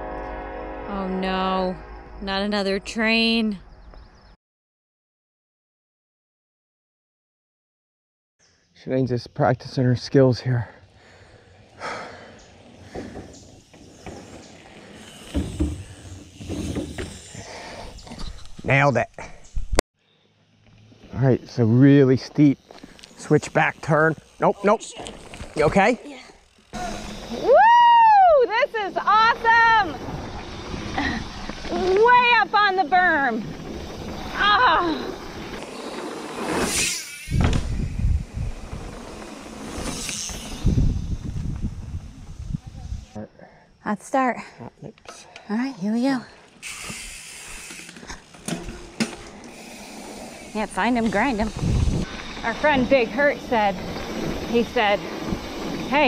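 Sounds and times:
bike tyres rolling over dirt: 10.0s - 18.9s, 20.4s - 43.1s, 46.2s - 56.0s
brief whoosh: 36.3s - 38.0s
wind rushing over microphone: 37.2s - 43.2s, 50.8s - 56.0s
low wind buffets on microphone: 37.3s - 39.0s, 40.3s - 43.2s, 50.9s - 56.0s.

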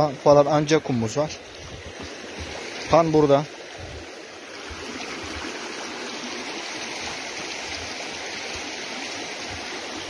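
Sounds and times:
creek rushing over rocks: 0.0s - 10.0s.

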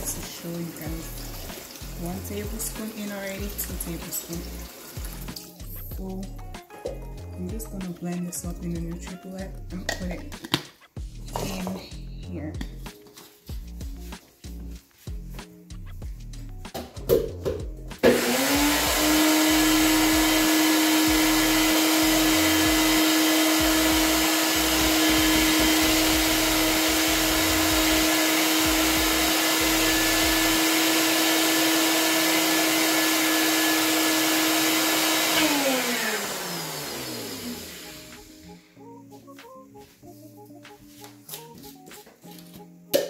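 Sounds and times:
blender motor running: 18.0s - 38.5s.

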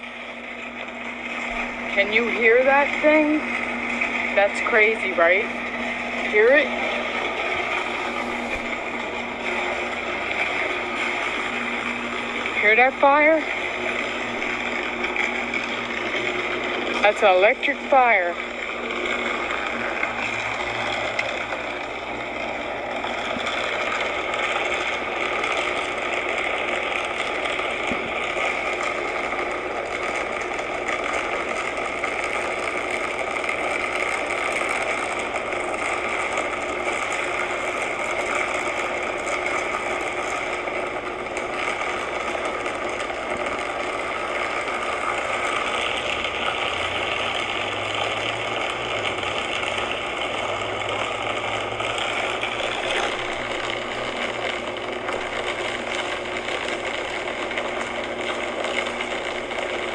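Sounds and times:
low hum: 0.0s - 30.5s
electrical arcing buzz: 0.0s - 59.9s.

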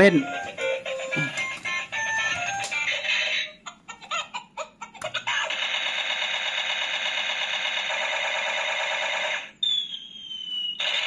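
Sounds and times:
toy electronic sound effect: 0.2s - 3.6s.

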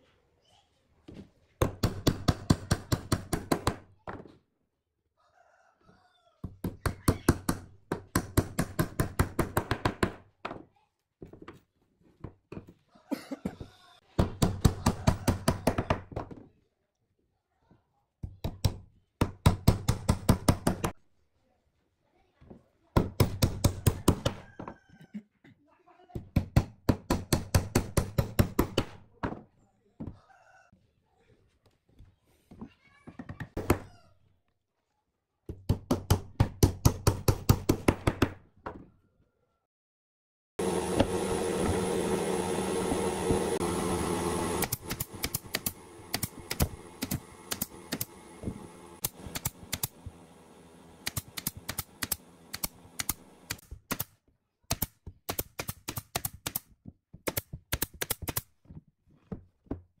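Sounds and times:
loud steady machine noise: 40.6s - 53.6s
nail gun firing: 44.6s - 48.2s, 49.0s - 50.0s, 51.0s - 54.1s.

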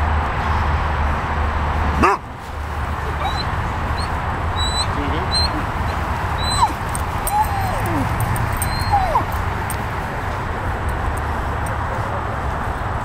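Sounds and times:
dog yipping and whining: 2.0s - 2.2s, 3.0s - 9.5s.

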